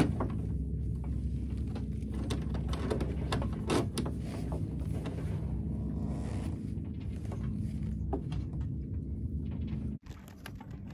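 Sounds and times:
rope rubbing and scraping: 0:01.4 - 0:08.3.

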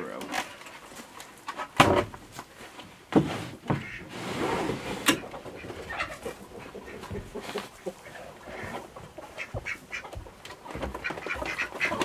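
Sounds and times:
wooden door scraping: 0:01.4 - 0:07.6.

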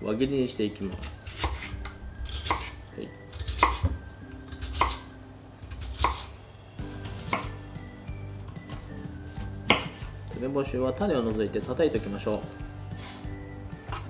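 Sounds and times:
knife slicing on wooden board: 0:07.0 - 0:07.5, 0:08.8 - 0:10.1.

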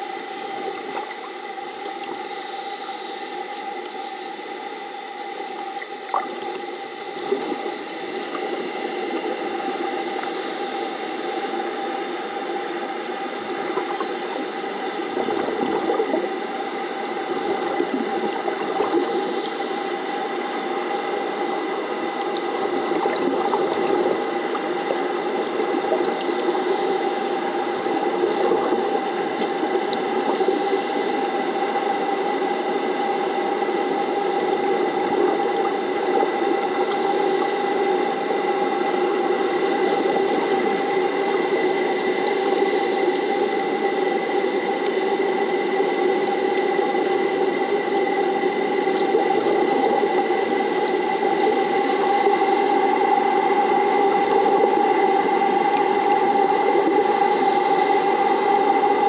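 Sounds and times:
underwater pump hum: 0:00.0 - 0:59.0
churning water: 0:12.9 - 0:59.0.

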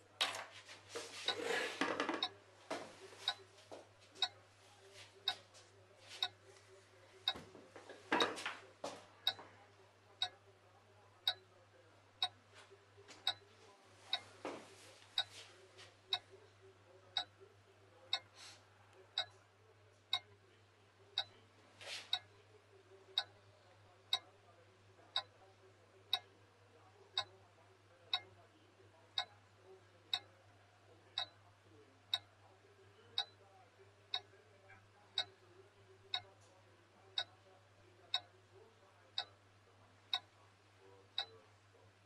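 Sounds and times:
low electrical hum: 0:00.0 - 0:42.0
soft handling rustles: 0:00.3 - 0:02.0
clock ticking: 0:01.3 - 0:02.4, 0:03.2 - 0:03.5, 0:04.2 - 0:04.4, 0:06.2 - 0:06.4, 0:07.2 - 0:07.4, 0:09.2 - 0:09.4, 0:10.2 - 0:10.4, 0:11.2 - 0:11.5, 0:13.1 - 0:13.4, 0:15.2 - 0:15.4, 0:16.1 - 0:16.3, 0:17.1 - 0:17.4, 0:18.1 - 0:18.3, 0:19.1 - 0:19.3, 0:21.2 - 0:21.4, 0:22.1 - 0:22.3, 0:23.1 - 0:23.4, 0:24.1 - 0:24.3, 0:25.1 - 0:25.3, 0:26.1 - 0:26.3, 0:27.1 - 0:27.4, 0:28.1 - 0:28.3, 0:29.1 - 0:29.4, 0:30.1 - 0:30.3, 0:31.2 - 0:31.4, 0:32.1 - 0:32.3, 0:33.2 - 0:33.4, 0:34.1 - 0:34.3, 0:35.2 - 0:35.4, 0:36.1 - 0:36.3, 0:38.1 - 0:38.3, 0:39.2 - 0:39.4, 0:41.2 - 0:41.4.

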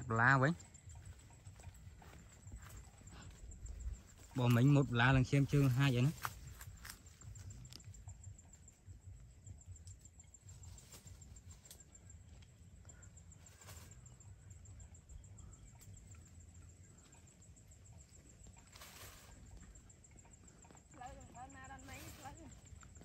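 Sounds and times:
leafy branches rustling: 0:01.1 - 0:07.8, 0:10.5 - 0:12.0, 0:13.3 - 0:14.2, 0:18.4 - 0:19.8, 0:21.4 - 0:23.0.

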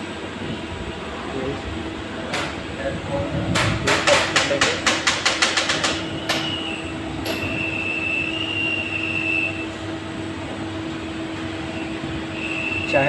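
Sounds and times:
lathe running hum: 0:00.0 - 0:13.0
thin high whine: 0:06.0 - 0:13.0.

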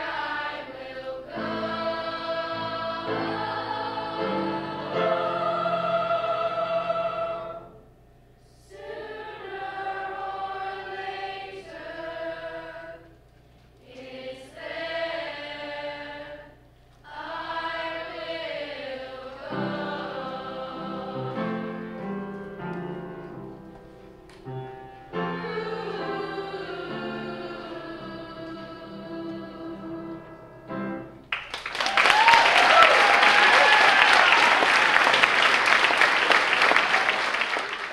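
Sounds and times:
choir singing held chords: 0:00.0 - 0:31.3.

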